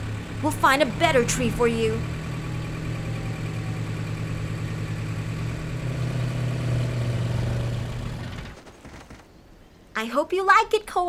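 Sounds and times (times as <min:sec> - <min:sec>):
jeep engine hum: 0:00.0 - 0:08.6.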